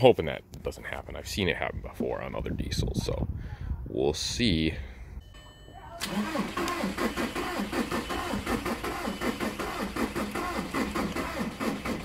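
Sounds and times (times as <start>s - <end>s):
starter motor cranking engine: 6.0s - 12.0s.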